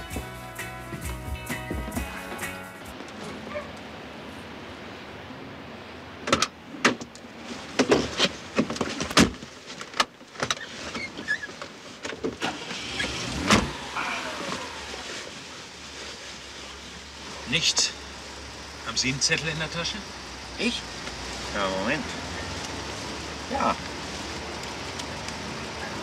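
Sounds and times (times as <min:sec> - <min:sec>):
steady low background noise: 0:00.0 - 0:07.8
car doors opening and shutting: 0:06.2 - 0:07.2, 0:12.0 - 0:15.4.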